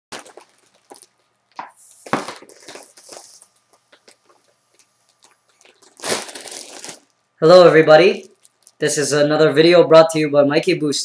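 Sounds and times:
foil balloon crinkling: 0.1 - 9.0
breathy hiss of helium inhaled: 1.8 - 4.4.

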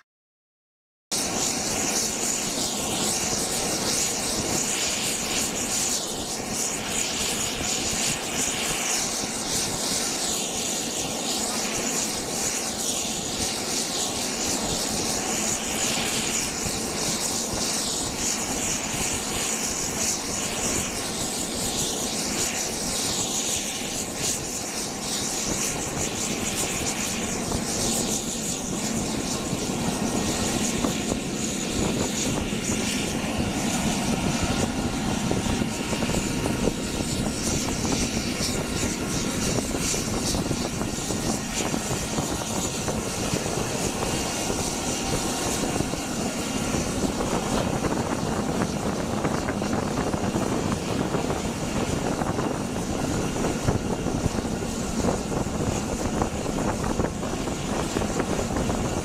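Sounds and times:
constant rushing noise: 1.1 - 59.0
high turbine whine: 1.1 - 59.0.

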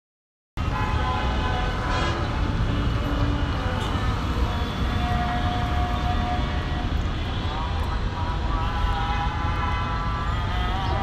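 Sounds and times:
road traffic rumble: 0.6 - 11.0
vehicle horn long note: 2.9 - 11.0.

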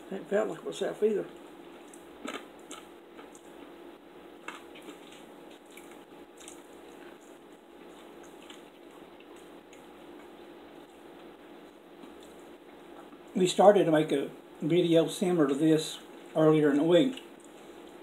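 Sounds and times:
low steady hum: 0.0 - 18.0
chewing crispy bacon: 1.3 - 13.4
wet mouth clicks: 4.5 - 7.4.

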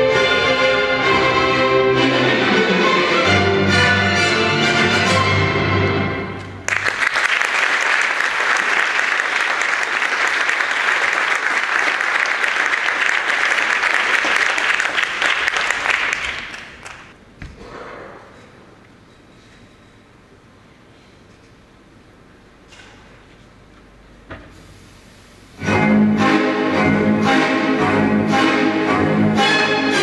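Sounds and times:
orchestral music: 0.0 - 6.7, 25.6 - 30.0
audience applauding: 6.6 - 17.2.

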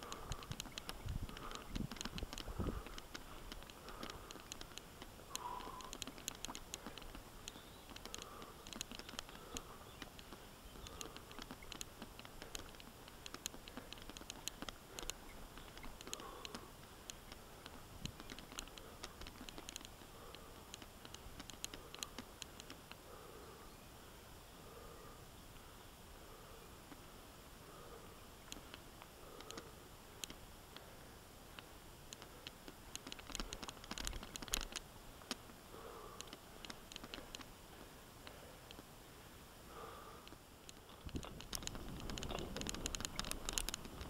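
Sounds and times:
bike clicking and rattling: 0.0 - 22.9, 32.2 - 37.9, 40.3 - 44.0.

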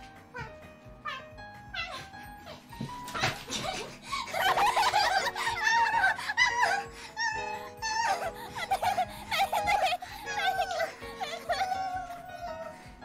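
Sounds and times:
background music with held notes: 0.0 - 13.0.

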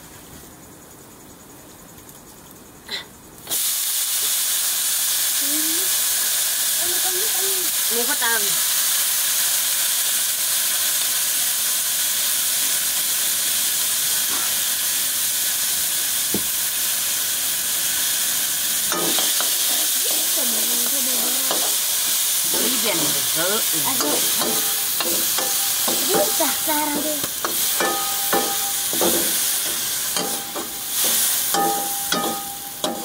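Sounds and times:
meat sizzling in a wok: 3.4 - 33.0
metal ladle clinking on pan: 27.4 - 29.4, 30.1 - 33.0.

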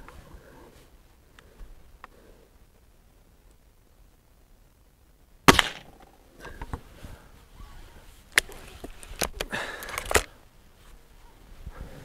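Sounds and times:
air rifle shot: 5.5 - 6.0
rifle handling clicks: 8.3 - 10.3.

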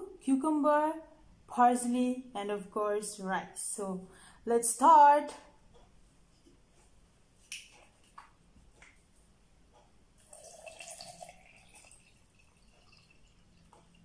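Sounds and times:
water pouring into a glass mug: 10.2 - 14.0.

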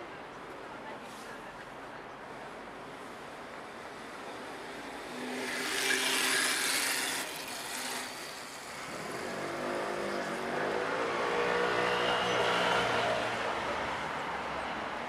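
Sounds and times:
vehicle passing: 4.0 - 13.5.

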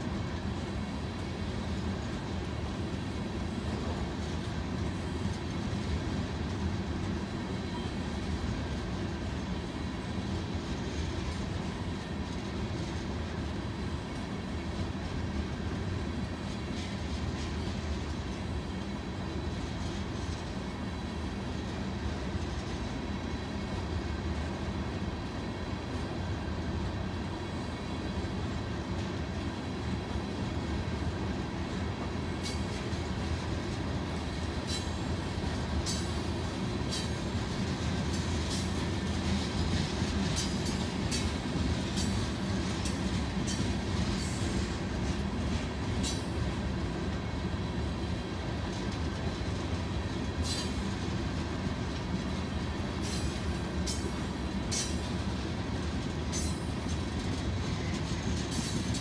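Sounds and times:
freight train rumbling past: 0.0 - 59.0.

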